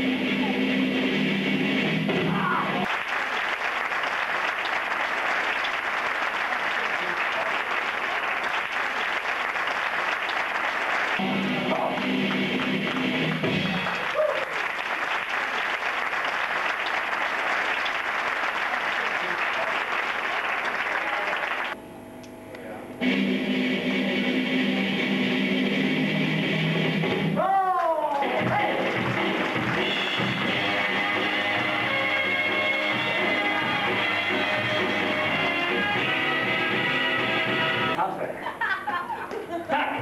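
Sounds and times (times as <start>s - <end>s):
background music: 0.0s - 2.8s, 11.2s - 14.2s, 23.0s - 27.4s, 28.2s - 38.0s
audience applauding: 2.8s - 21.8s, 27.6s - 38.0s.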